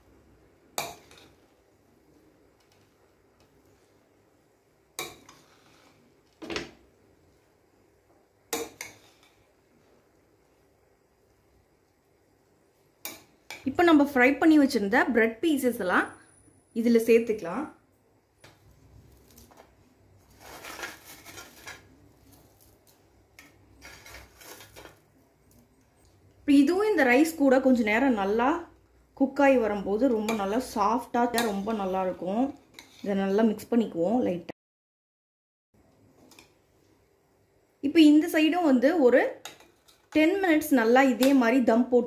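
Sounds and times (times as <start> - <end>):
handling of dish: 19.2 - 25.1.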